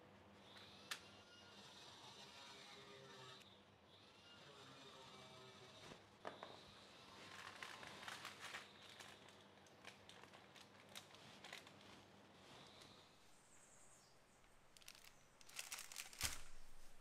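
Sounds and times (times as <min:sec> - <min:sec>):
baking paper crinkling: 0:07.2 - 0:13.0, 0:14.6 - 0:17.0.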